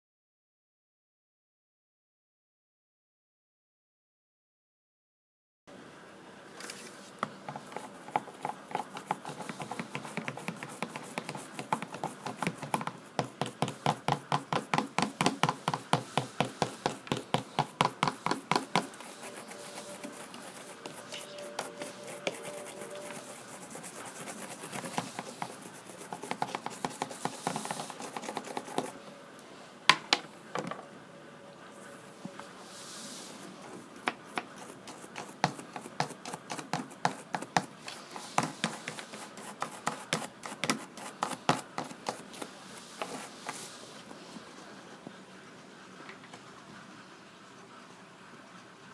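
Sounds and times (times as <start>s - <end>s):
toothbrush scrubbing plastic teeth: 16.9s - 29.0s.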